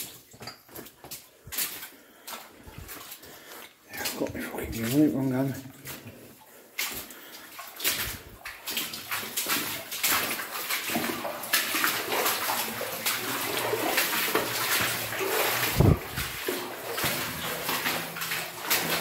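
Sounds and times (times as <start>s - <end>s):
water sloshing and splashing: 0.0s - 19.0s.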